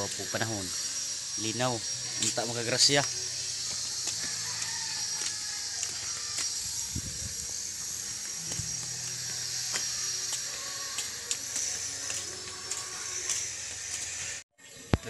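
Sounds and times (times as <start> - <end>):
distant rooster crowing: 3.8 - 6.7.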